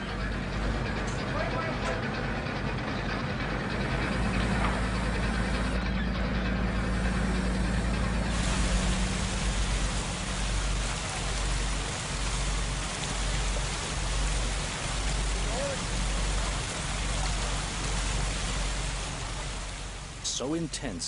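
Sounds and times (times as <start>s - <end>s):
boat machinery drone: 0.0s - 21.0s
water splashing from a hose: 6.9s - 21.0s.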